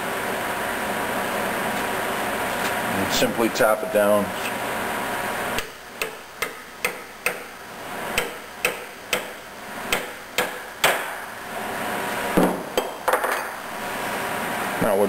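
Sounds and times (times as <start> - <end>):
hammer tapping metal driver: 5.6 - 7.5, 8.2 - 11.2.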